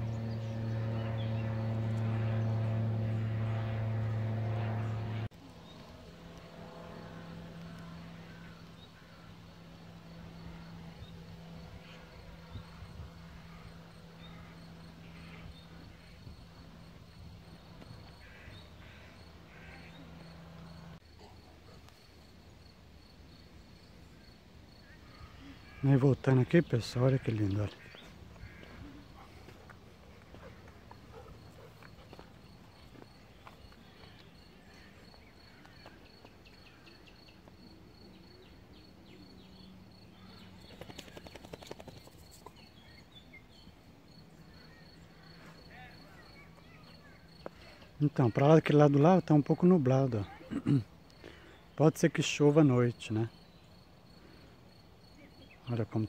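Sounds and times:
low steady hum: 0:00.0 - 0:40.9
crickets chirping: 0:06.9 - 0:26.7, 0:27.7 - 0:56.0.

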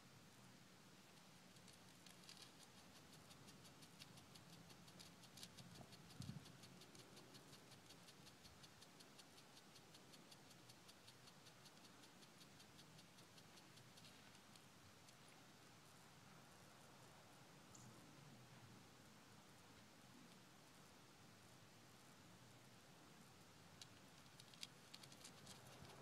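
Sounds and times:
rapid high-pitched ticking: 0:01.5 - 0:15.3, 0:23.8 - 0:26.0.

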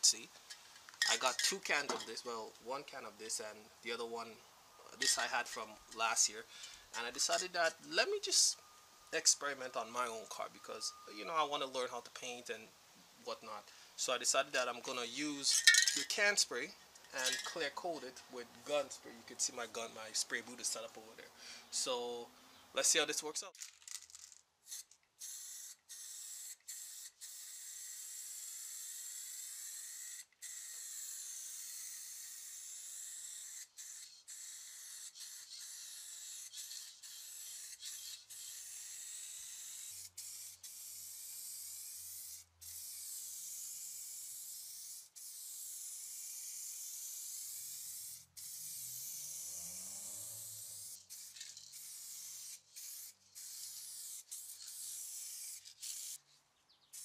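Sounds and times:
spray can hissing: 0:24.6 - 0:56.2.

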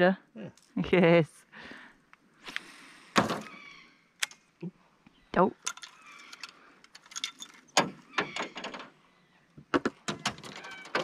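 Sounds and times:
fishing gear clicks and rattles: 0:05.6 - 0:09.0, 0:09.8 - 0:11.0.

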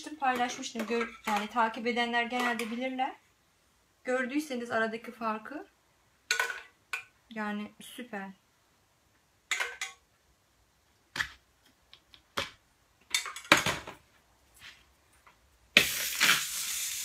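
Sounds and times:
butter sizzling on hot plate: 0:15.8 - 0:17.0.

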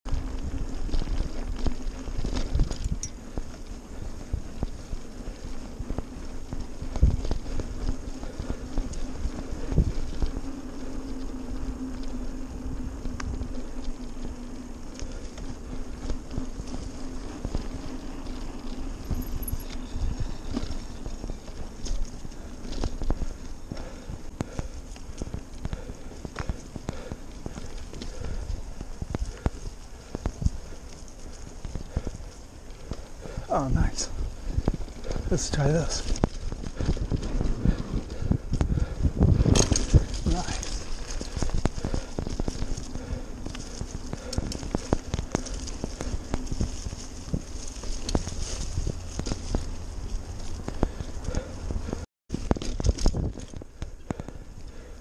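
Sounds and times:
bike tyres rumbling on dirt: 0:00.0 - 0:55.0
bike rattling over bumps: 0:00.1 - 0:55.0.

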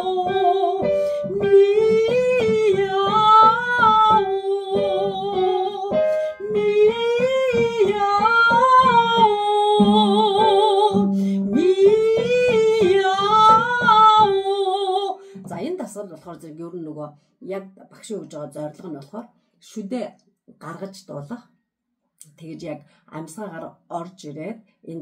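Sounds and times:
piano notes: 0:00.0 - 0:15.8
woman singing vocal warm-up: 0:00.0 - 0:15.8.

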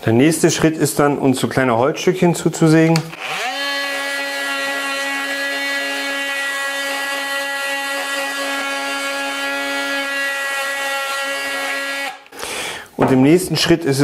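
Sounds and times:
multi-tool sanding wood: 0:03.2 - 0:12.2.

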